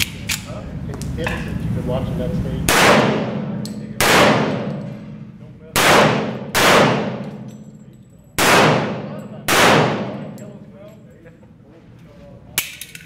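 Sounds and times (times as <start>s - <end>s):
pistol shots echoing indoors: 2.7s - 7.8s, 8.4s - 10.6s.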